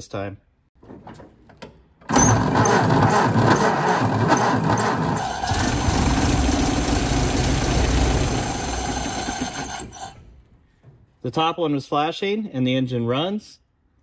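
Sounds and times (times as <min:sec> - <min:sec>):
car engine cranking and starting: 0:02.0 - 0:10.4.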